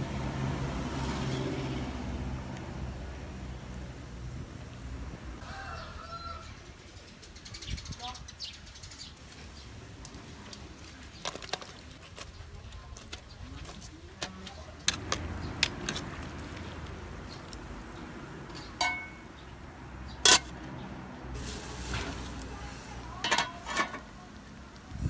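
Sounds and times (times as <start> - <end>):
ladle scraping metal pot: 13.0 - 16.8, 20.2 - 20.6, 21.4 - 24.1
metal lid clanking on pot: 18.7 - 19.2, 20.3 - 20.5, 23.2 - 24.1.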